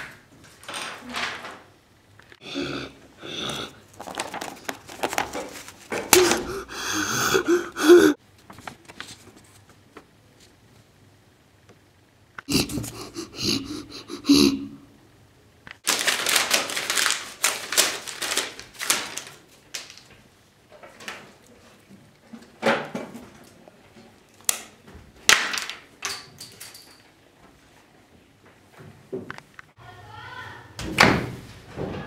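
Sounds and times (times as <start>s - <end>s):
paper crumpling and tearing: 3.9s - 6.4s, 15.8s - 20.1s.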